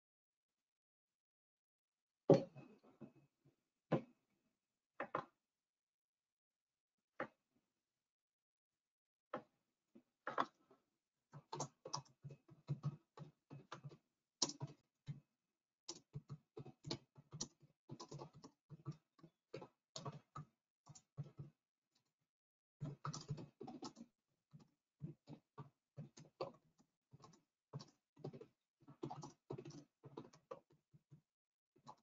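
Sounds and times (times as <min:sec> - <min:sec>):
typing on computer keyboard: 0:11.4 - 0:14.8, 0:15.9 - 0:21.5, 0:22.8 - 0:26.6, 0:27.2 - 0:30.8, 0:31.8 - 0:32.0.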